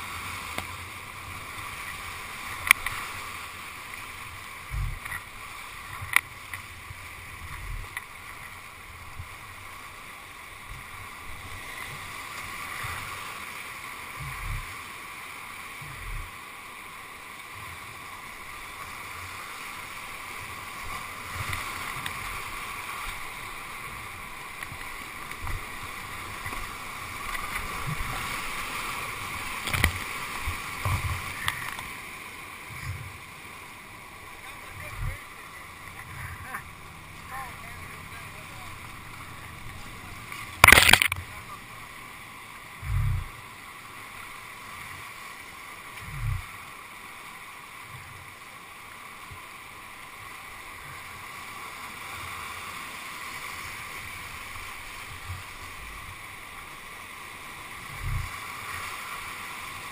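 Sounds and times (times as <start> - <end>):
whitewater rapids rushing: 0.0 - 59.9
low thumps on kayak: 42.8 - 43.4.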